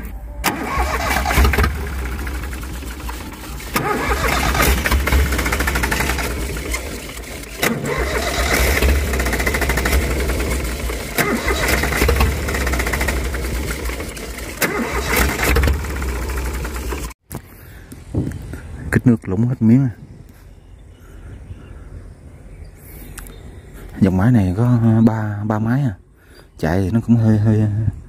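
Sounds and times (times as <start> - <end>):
diesel engine running unevenly: 0.4 - 17.2.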